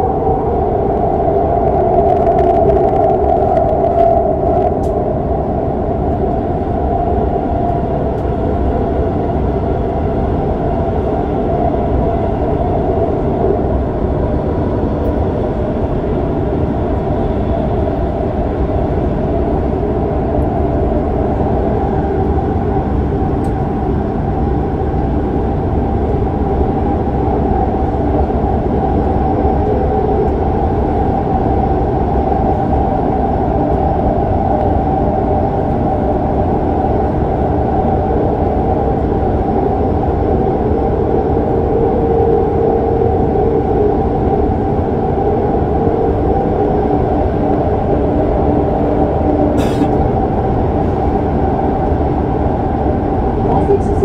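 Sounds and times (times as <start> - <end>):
subway train running in tunnel: 0.0 - 54.0.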